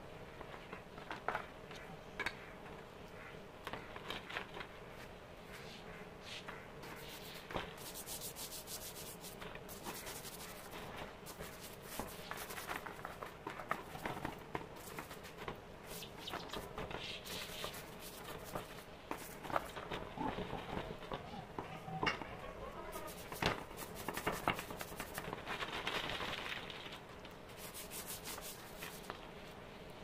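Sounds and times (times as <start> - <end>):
brush scrubbing plastic housing: 7.0 - 13.2, 22.9 - 25.2, 27.6 - 29.1.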